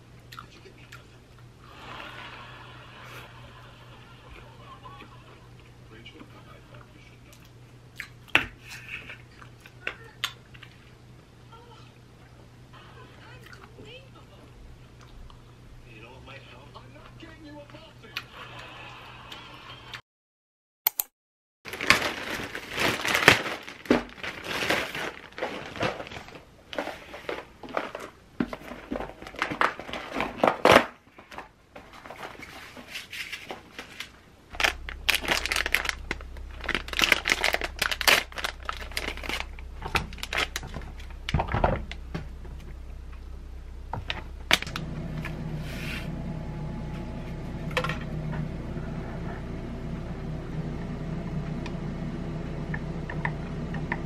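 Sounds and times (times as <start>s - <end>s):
plastic packaging crinkling and tearing: 21.7s - 42.0s
steady low hum: 34.0s - 54.0s.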